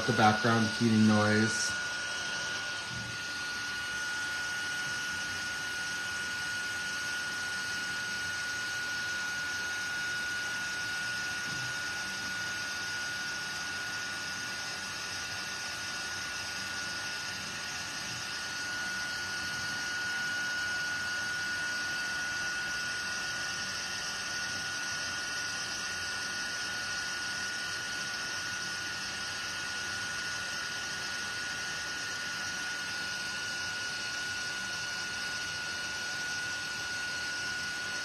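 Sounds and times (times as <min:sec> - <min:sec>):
high whine: 0:00.0 - 0:06.0
heat gun fan hissing: 0:00.0 - 0:38.0.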